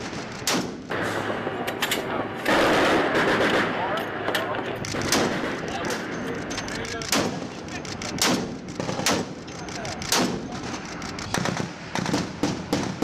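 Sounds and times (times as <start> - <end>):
rifle shots: 0.0 - 13.0.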